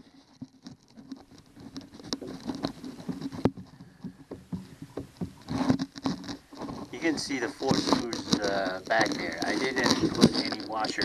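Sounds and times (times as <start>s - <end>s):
handling taps and clicks: 0.0s - 11.0s.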